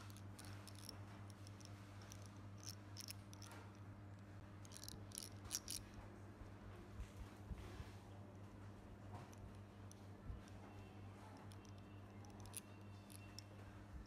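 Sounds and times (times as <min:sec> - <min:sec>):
light clicks and scrapes of parts: 0:00.0 - 0:06.1
faint low hum: 0:00.0 - 0:14.0.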